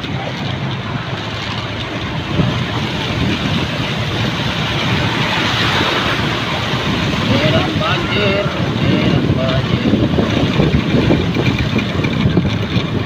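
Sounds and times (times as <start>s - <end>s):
vehicle splashing through floodwater: 0.0s - 13.0s.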